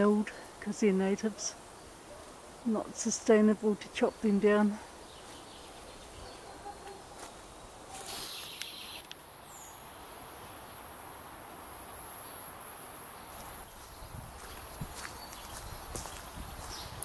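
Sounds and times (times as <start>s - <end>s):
faint outdoor ambience: 0.0s - 17.0s
insects buzzing high-pitched: 7.6s - 14.0s.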